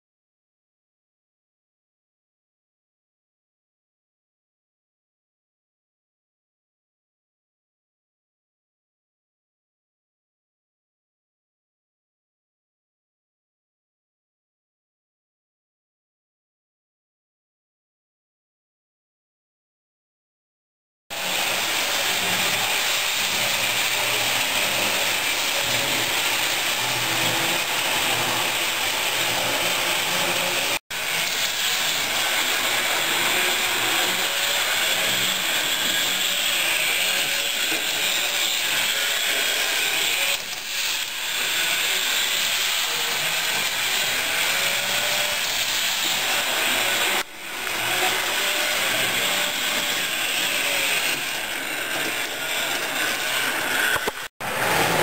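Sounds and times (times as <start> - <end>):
model train whirring on track: 21.2 - 55.0.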